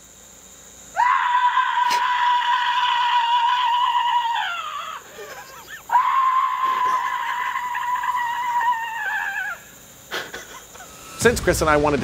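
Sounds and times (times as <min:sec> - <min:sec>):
wavering cries: 0:00.9 - 0:11.2
person screaming: 0:01.0 - 0:09.8.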